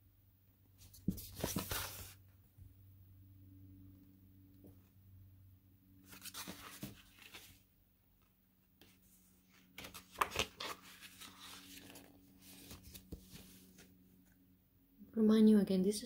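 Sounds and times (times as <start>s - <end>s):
paper rustling: 0.8s - 2.2s, 6.0s - 7.7s, 8.8s - 14.0s
page snaps: 9.8s - 10.8s.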